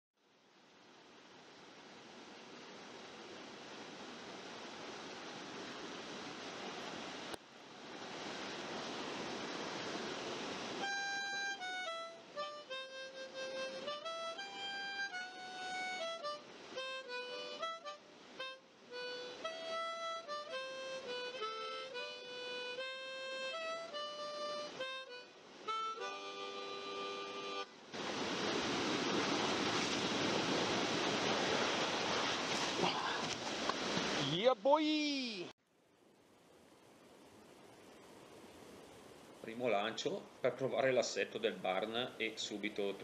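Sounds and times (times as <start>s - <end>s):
water rushing down cascade: 1.2s - 12.0s, 27.9s - 35.5s
background music melody: 10.8s - 27.8s.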